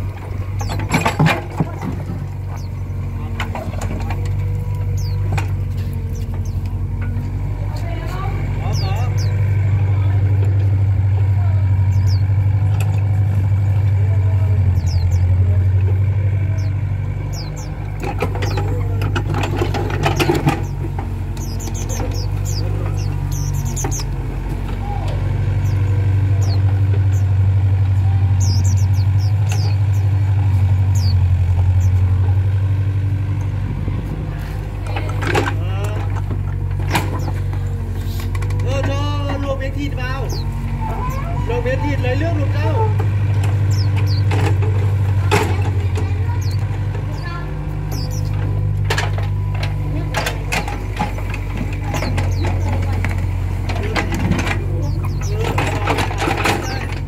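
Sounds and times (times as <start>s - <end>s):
scraping and clatter: 0.0s - 8.2s, 17.3s - 24.1s
excavator diesel engine: 0.0s - 57.0s.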